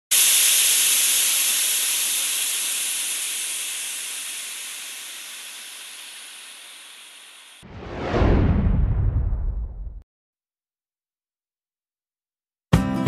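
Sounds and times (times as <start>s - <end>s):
steam hissing: 0.1s - 7.7s.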